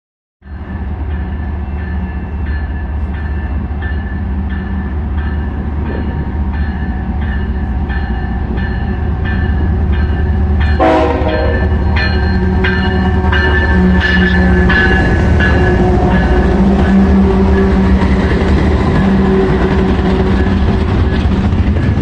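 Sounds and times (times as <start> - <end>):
train bell ringing: 0.4 - 21.6
diesel train rumble: 0.6 - 22.0
train horn blast: 10.8 - 18.2, 19.0 - 20.6.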